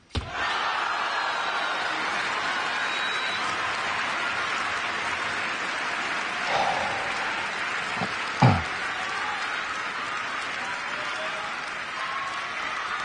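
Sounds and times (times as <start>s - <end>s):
crowd murmur: 6.1s - 10.0s.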